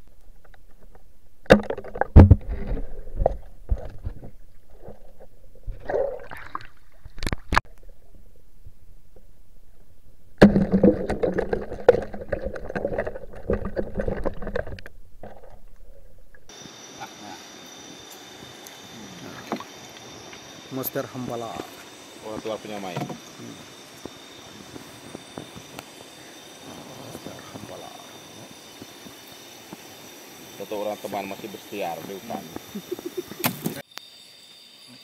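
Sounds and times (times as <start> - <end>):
low hum: 0.0 - 16.5
underwater crackling and bubbling: 0.0 - 16.5
underwater knocks and clicks: 0.3 - 8.0, 10.4 - 16.5.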